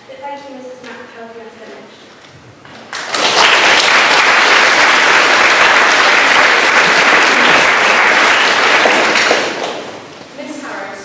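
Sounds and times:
audience applauding: 2.8 - 10.2.

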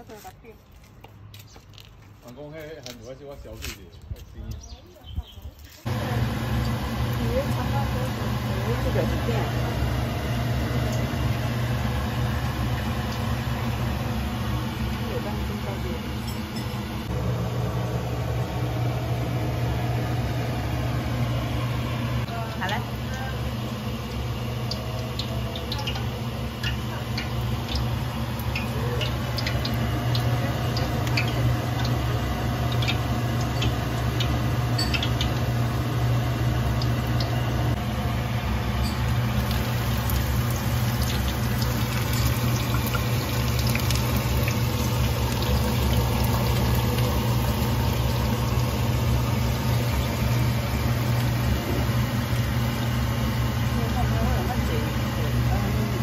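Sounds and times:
shallots sizzling in hot oil: 5.9 - 16.2, 22.2 - 55.4
oil popping: 22.3 - 37.8, 38.4 - 53.8.

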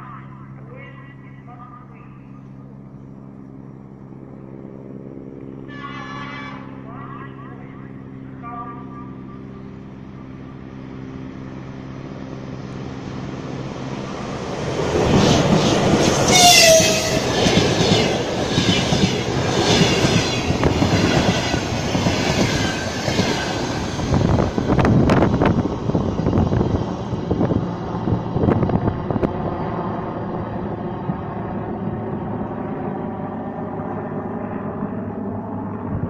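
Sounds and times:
electric locomotive hum: 0.0 - 36.0
train horn: 5.7 - 6.6, 16.2 - 17.5.

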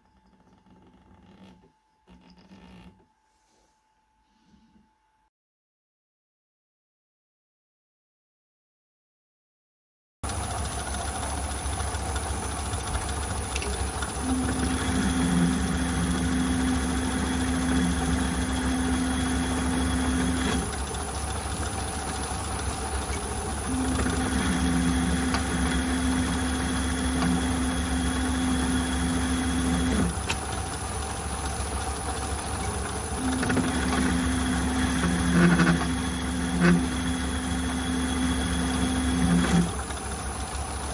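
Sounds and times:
metal lathe running: 10.2 - 40.9
lead screw motor whine: 10.3 - 40.9.

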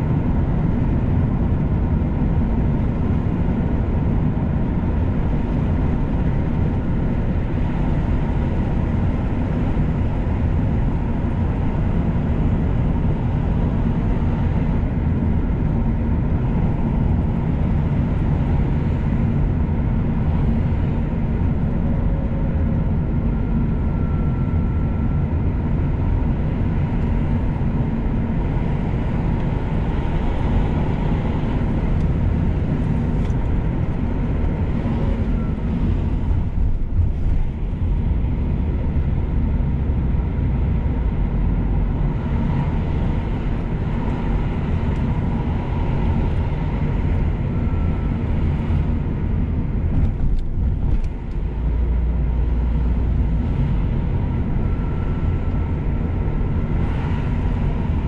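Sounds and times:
car engine and tyre noise: 0.0 - 58.0.

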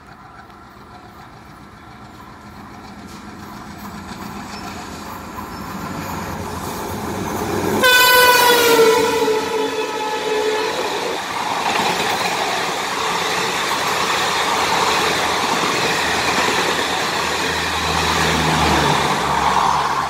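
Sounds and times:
diesel locomotive engine and wheels: 0.0 - 20.0
train horn blasting: 7.8 - 11.2.

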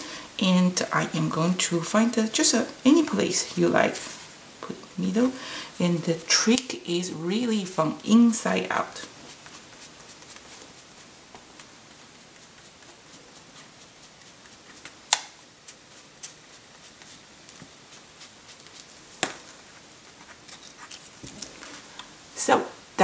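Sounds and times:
sponge rubbing on paper card: 8.8 - 21.8.

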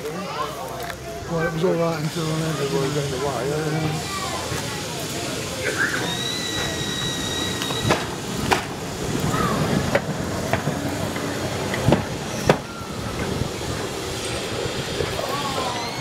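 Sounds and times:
murmur of onlookers: 0.0 - 16.0
steady high whine: 0.9 - 16.0
tram wheels knocking over rail joints: 6.4 - 16.0.

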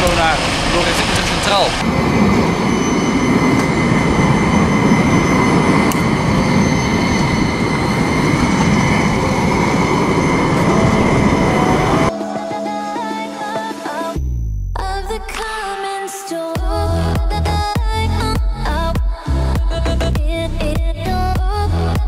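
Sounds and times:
tram rumbling on rails: 0.0 - 12.1
high whine: 0.0 - 19.0.

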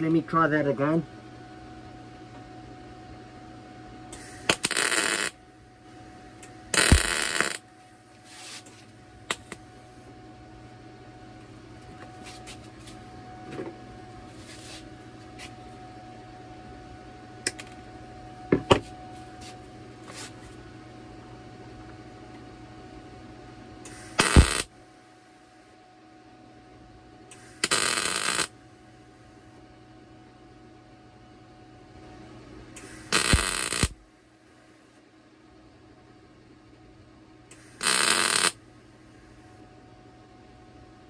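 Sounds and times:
crackling welding arc: 4.2 - 5.4, 6.7 - 7.6, 23.9 - 24.7, 27.5 - 28.5, 32.8 - 34.0, 37.6 - 38.6.

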